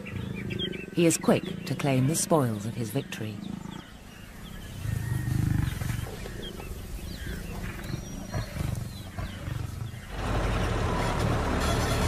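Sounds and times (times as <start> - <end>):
lion growling low: 0.0 - 1.8, 3.3 - 11.1
small birds chirping: 0.0 - 10.8
low rumbling noise: 4.1 - 12.0.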